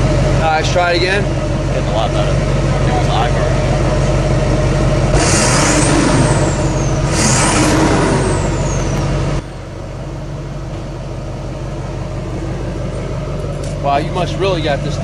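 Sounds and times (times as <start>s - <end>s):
diesel engine idling and revving: 0.0s - 15.0s
high whistle: 5.2s - 9.1s.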